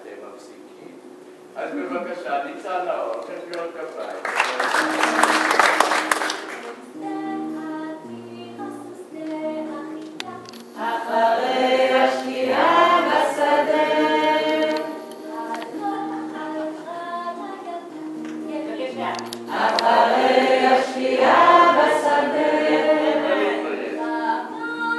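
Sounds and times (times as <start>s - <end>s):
group singing held notes: 4.9s - 24.9s.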